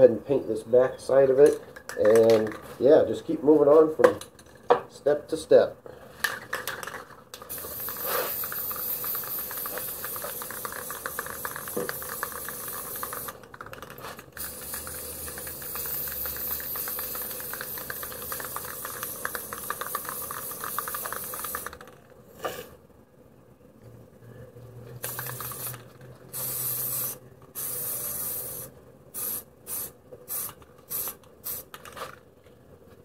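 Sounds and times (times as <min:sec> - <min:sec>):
spray paint can hissing: 0:07.4 - 0:22.0, 0:25.0 - 0:31.8.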